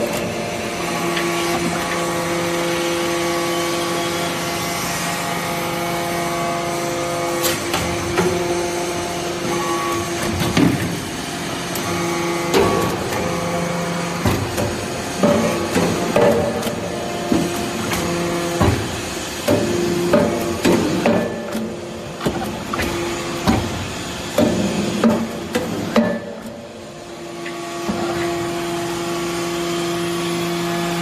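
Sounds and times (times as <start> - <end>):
hydraulic press humming: 0.0 - 31.0
press knocks and clanks: 14.2 - 26.6.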